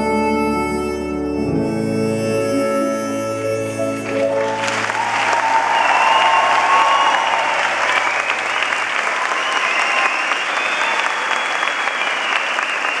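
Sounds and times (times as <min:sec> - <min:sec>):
audience applauding: 0:03.9 - 0:13.0.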